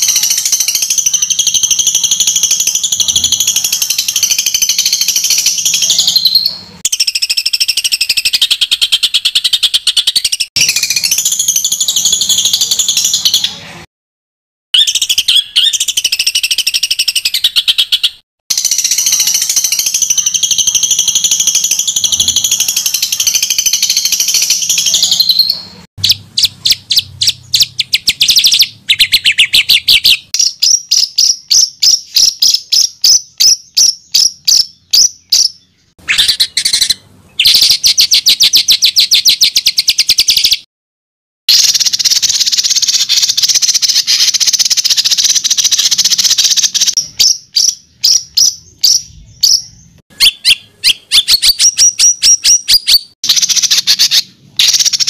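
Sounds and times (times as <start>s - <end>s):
songbird trilling: 0.0s - 13.6s, 14.8s - 40.6s, 41.6s - 55.0s.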